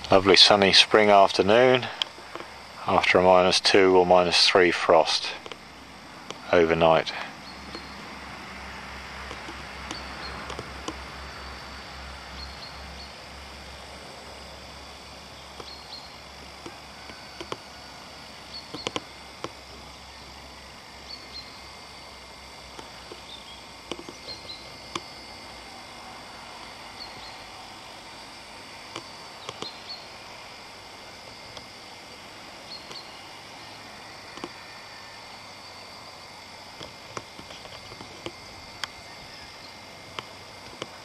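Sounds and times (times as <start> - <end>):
distant tractor drone: 0.0 - 41.0
sharp clicks: 5.4 - 5.6, 9.2 - 11.0, 15.5 - 16.0, 16.6 - 17.6, 18.5 - 19.6, 22.7 - 25.1, 28.9 - 29.9, 34.3 - 34.6.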